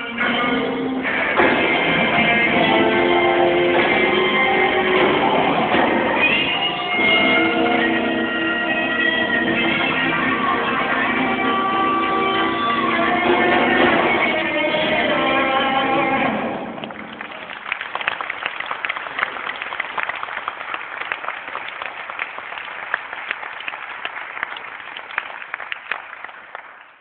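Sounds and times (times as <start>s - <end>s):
audience applauding: 16.6s - 27.0s.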